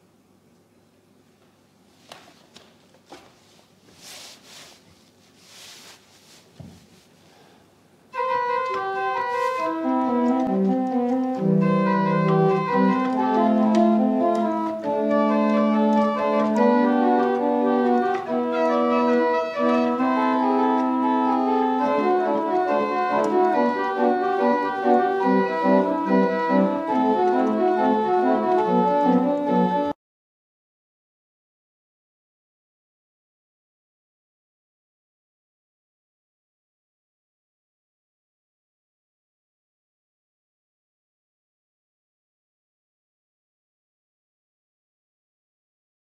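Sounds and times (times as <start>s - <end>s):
church pipe organ playing: 8.1s - 30.0s.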